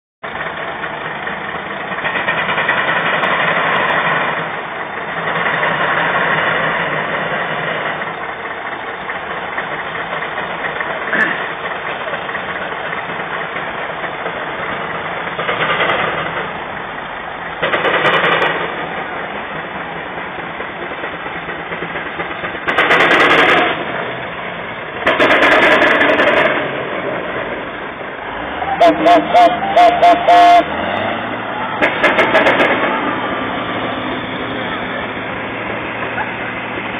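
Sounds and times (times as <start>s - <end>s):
steam traction engine running: 0.2s - 36.9s
steam hissing bursts: 28.2s - 36.9s.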